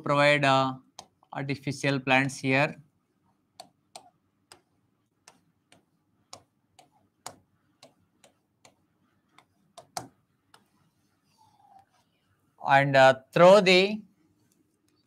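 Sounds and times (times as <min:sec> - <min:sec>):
stylus tapping on screen: 0:00.9 - 0:01.3, 0:03.5 - 0:10.9.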